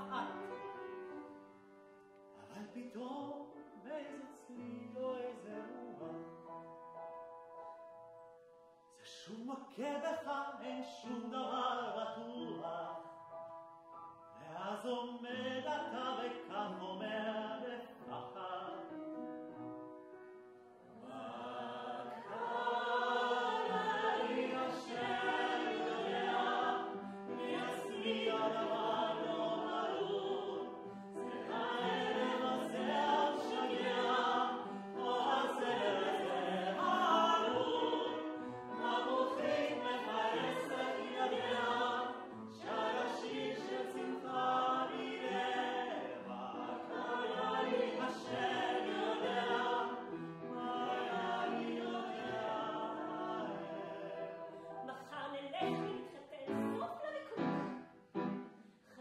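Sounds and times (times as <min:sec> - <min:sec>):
upright piano: 0:00.0 - 0:09.0, 0:10.2 - 0:58.7
man singing operatically: 0:02.6 - 0:05.9, 0:14.5 - 0:18.9
woman singing operatically: 0:54.9 - 0:57.5.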